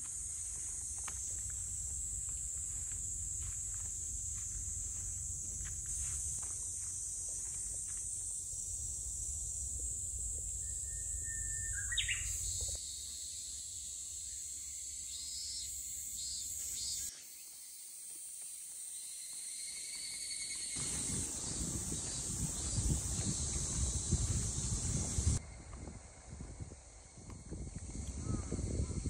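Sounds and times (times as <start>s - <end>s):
insects trilling: 0.0s - 29.0s
bird call sweeping upward: 10.6s - 12.6s.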